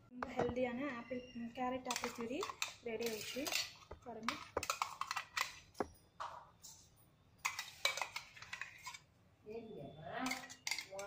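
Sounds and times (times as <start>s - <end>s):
spoon scraping steel jar: 1.8s - 5.8s, 7.4s - 9.1s.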